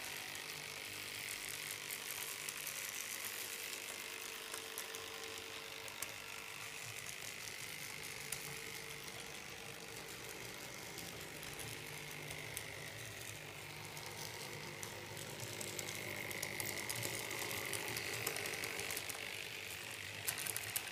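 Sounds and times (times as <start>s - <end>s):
model tram motor whine: 0.0s - 20.9s.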